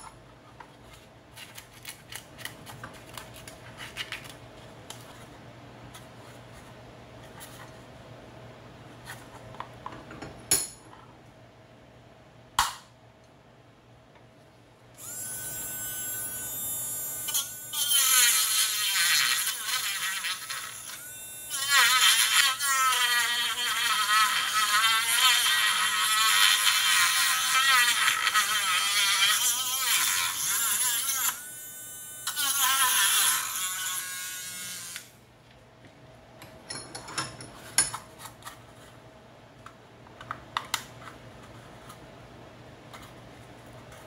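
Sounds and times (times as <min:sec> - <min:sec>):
rotary tool cutting plastic: 0:15.0 - 0:31.6, 0:32.2 - 0:35.1.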